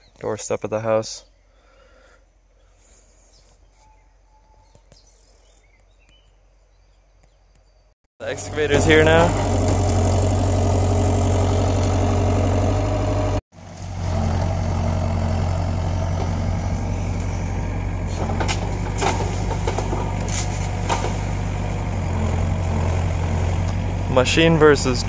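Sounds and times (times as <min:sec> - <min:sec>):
diesel engine running: 0:08.2 - 0:25.0
branches cracking and snapping: 0:15.4 - 0:23.9.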